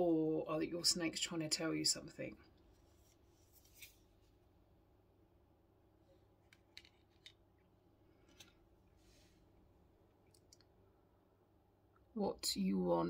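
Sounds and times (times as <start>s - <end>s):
soft swish of card: 2.8s - 4.2s.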